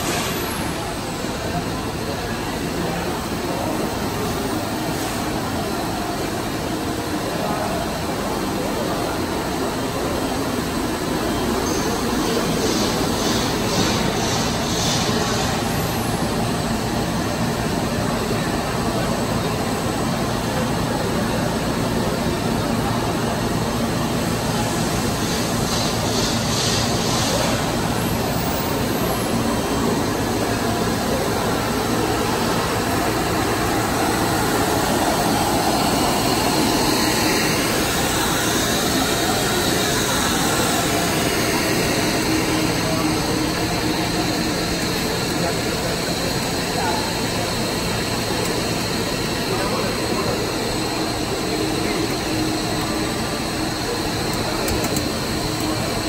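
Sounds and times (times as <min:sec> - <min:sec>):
steady machine noise: 0:00.0 - 0:56.0.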